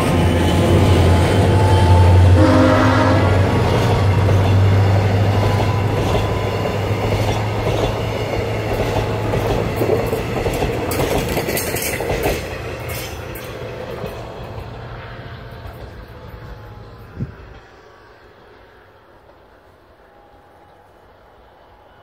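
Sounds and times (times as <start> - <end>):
train wheels rumbling on rails: 0.0 - 22.0
wheel clacks: 5.4 - 14.7.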